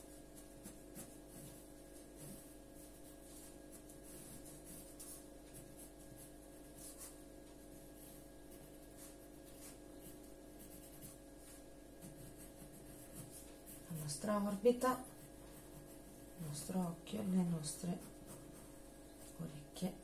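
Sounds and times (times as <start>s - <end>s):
pencil scratching on paper: 0.3s - 16.7s, 17.7s - 18.8s.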